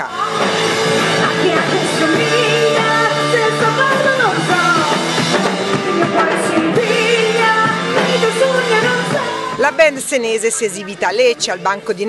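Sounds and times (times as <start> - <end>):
drums: 0.0 - 12.0
electric guitars: 0.0 - 12.0
woman singing: 0.0 - 12.0.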